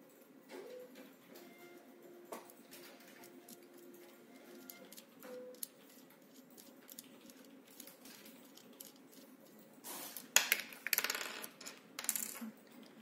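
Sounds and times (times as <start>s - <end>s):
small metal parts clicking: 4.6s - 9.6s.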